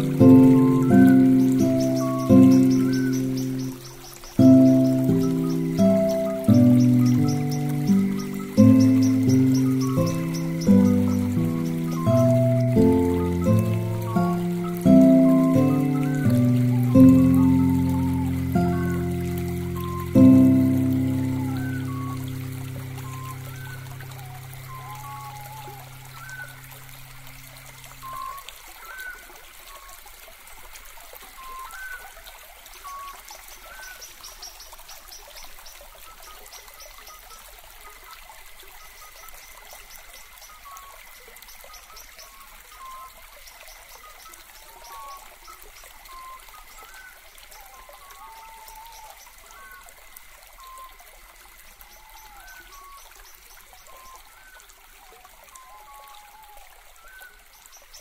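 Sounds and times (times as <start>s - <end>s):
background music: 0.0s - 3.7s, 4.4s - 25.2s
bird chirps: 0.0s - 26.5s
trickling stream: 0.0s - 58.0s.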